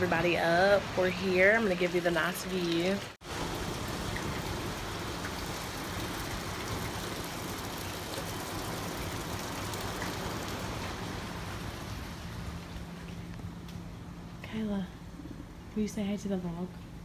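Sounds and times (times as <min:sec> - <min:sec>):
sea breeze: 0:00.0 - 0:17.0.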